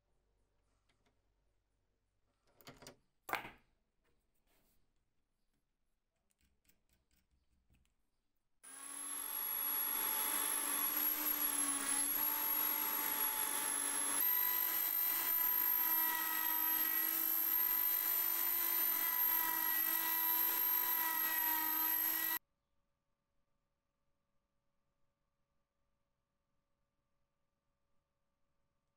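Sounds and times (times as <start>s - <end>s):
electric drill motor whine: 8.7s - 22.4s.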